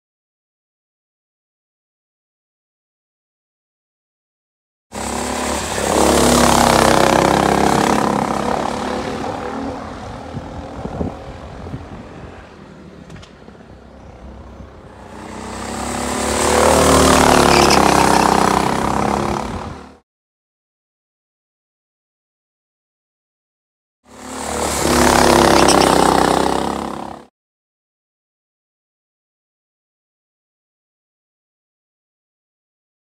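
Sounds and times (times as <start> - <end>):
racing kart engines at high revs: 4.9 - 20.0, 24.1 - 27.3.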